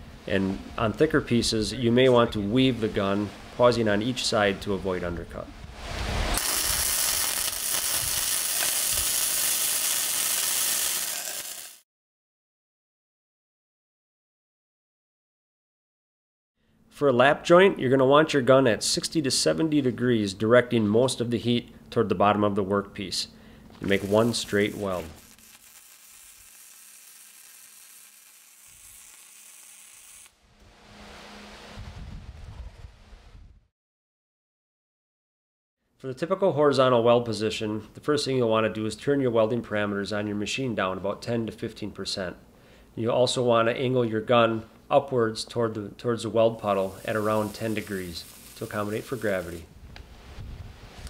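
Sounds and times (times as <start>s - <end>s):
welding arc crackling and sizzling: 6.3s - 11.8s, 23.8s - 30.8s, 46.6s - 49.7s.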